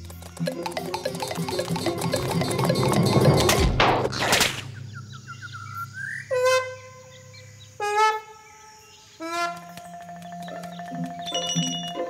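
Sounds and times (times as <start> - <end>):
quick bird-like chirps: 0.0 - 7.7, 9.2 - 12.0
held musical notes: 0.3 - 3.8.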